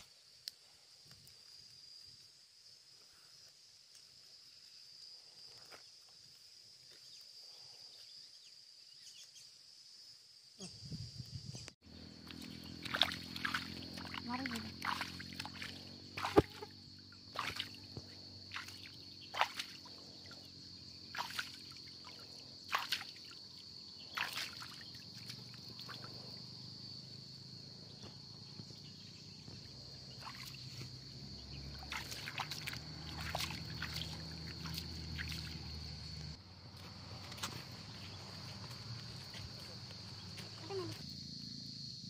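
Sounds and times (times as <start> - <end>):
high insect drone: 0.0 - 42.0
hands splashing in stream water: 12.2 - 16.7, 17.3 - 20.1, 21.1 - 23.4, 24.1 - 26.1, 31.7 - 36.0.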